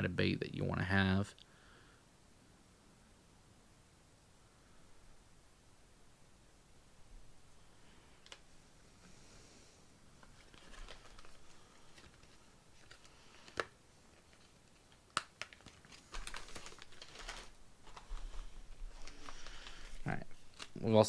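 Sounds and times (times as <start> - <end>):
plastic packaging crinkling: 10.2 - 21.0.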